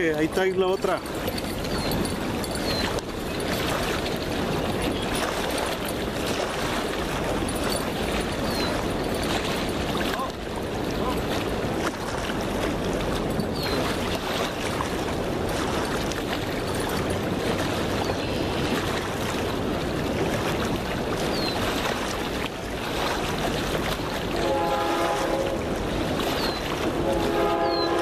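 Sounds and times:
river water against rocks: 0.0 - 28.0
distant train horn: 24.2 - 25.9, 26.8 - 28.0.

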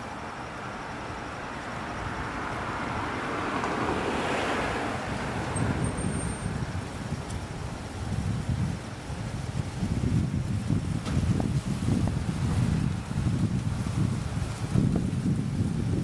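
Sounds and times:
vehicle passing: 0.0 - 10.2
street traffic noise: 0.0 - 16.0
wind rumbling on microphone: 0.0 - 16.0.

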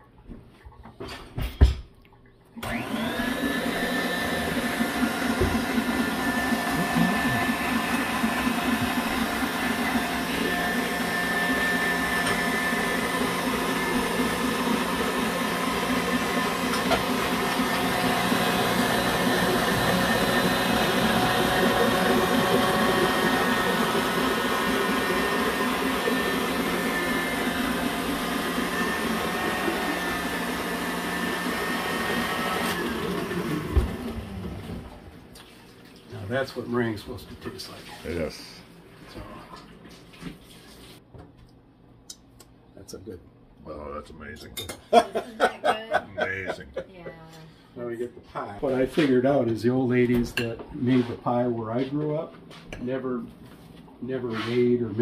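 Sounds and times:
stand mixer motor whining: 2.6 - 35.1
mixer head knock: 4.9 - 7.8.

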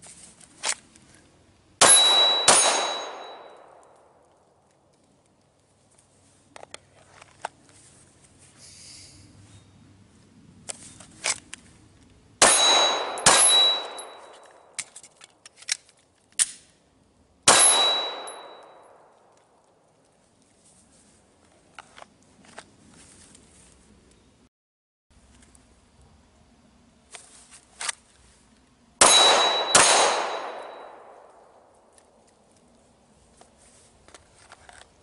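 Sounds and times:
steel target clanging: 1.8 - 3.7, 12.4 - 14.5, 17.5 - 18.8, 29.0 - 31.1
pistol shots: 1.8 - 4.0, 12.4 - 14.3, 17.5 - 19.1, 29.0 - 31.7.

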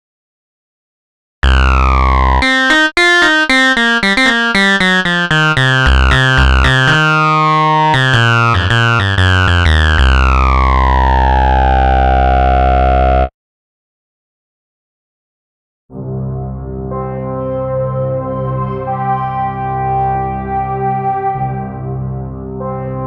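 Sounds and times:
synthesizer notes: 1.4 - 13.3.

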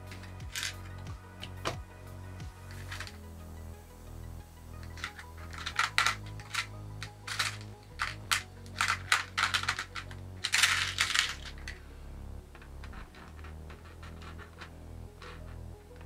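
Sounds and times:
screws and nuts clattering: 0.1 - 1.2, 2.7 - 3.2, 4.8 - 11.8, 12.6 - 16.0.

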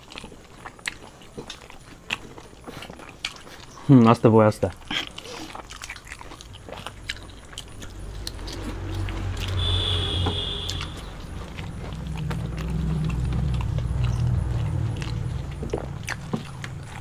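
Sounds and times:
chewing and tearing flatbread: 0.0 - 9.7, 10.9 - 17.0
low rumble: 6.4 - 17.0
thin high tone: 8.8 - 11.2.

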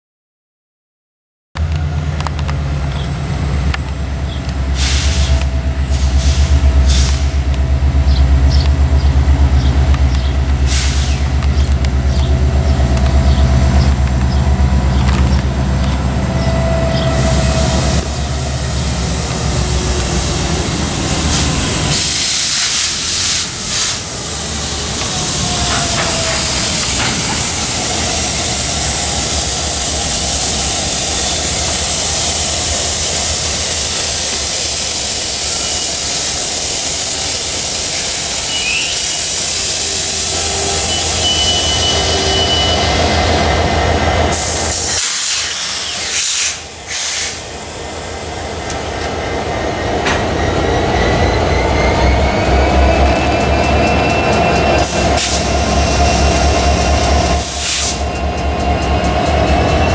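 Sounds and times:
locomotive engine rumble: 1.6 - 59.9
loud hiss: 4.6 - 7.5, 10.6 - 11.3, 17.0 - 48.6, 54.8 - 58.1.

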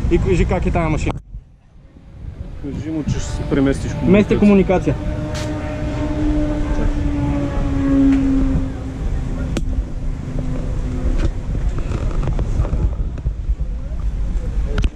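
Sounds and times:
wind rumble on microphone: 0.0 - 14.9
kart engine running: 1.9 - 14.9.

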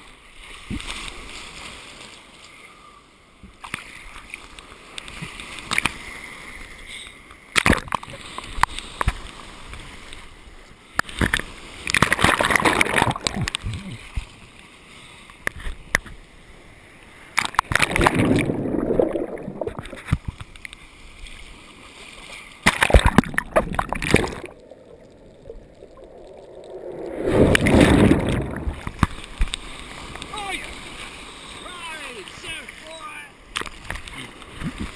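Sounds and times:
surf splashing over camera: 11.1 - 14.3, 17.3 - 20.6, 21.6 - 34.9
muffled underwater surges: 22.8 - 31.7.

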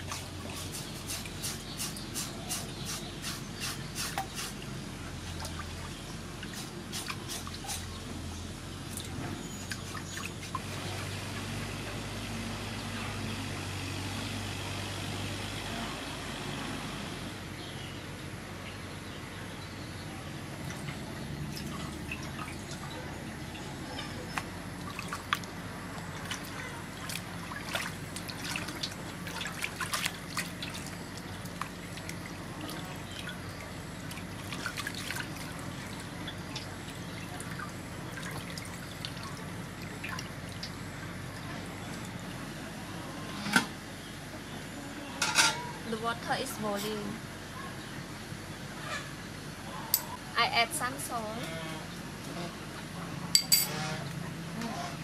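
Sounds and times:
water sloshing in a metal basin: 0.0 - 12.0, 20.5 - 42.5, 45.2 - 47.1
hands scrubbing pork skin: 0.1 - 4.6
small splashes and drips: 4.0 - 8.0, 8.9 - 11.5, 20.6 - 42.4.

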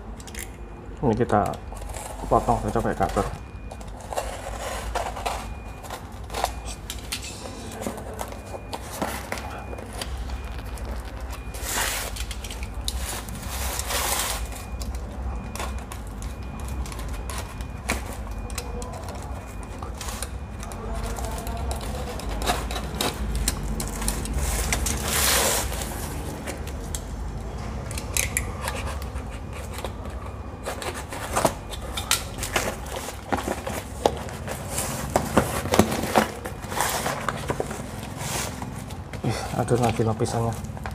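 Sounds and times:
low steady hum: 0.0 - 40.9
handling clicks and crinkles: 0.1 - 40.9
cardboard tearing: 24.0 - 26.4.

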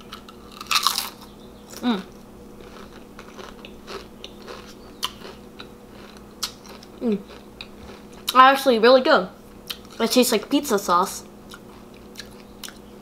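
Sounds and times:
crisp being chewed: 0.0 - 8.4, 9.6 - 10.0, 11.4 - 12.9
faint steady hum: 0.0 - 13.0
person humming: 1.8 - 2.1, 7.0 - 7.3.

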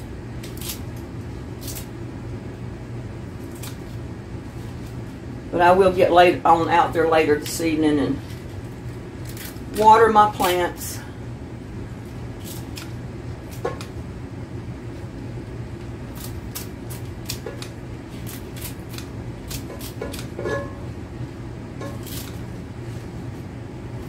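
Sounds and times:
steady low hum: 0.0 - 24.0
scissors snipping leafy greens: 0.4 - 1.9, 3.4 - 4.0, 8.3 - 10.6, 12.4 - 13.9, 16.1 - 20.4, 21.8 - 22.4.

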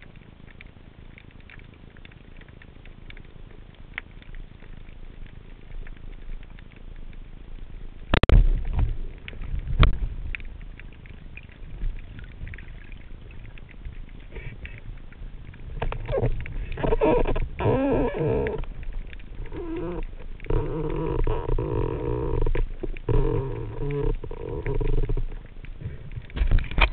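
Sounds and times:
crackling and scraping underwater: 0.0 - 26.9
knock underwater: 8.2 - 9.0.

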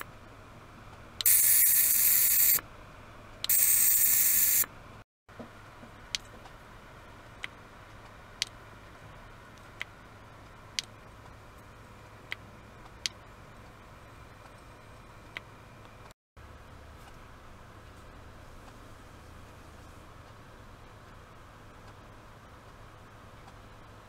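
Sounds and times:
ultrasonic device hissing in water: 1.2 - 2.6, 3.5 - 4.7.

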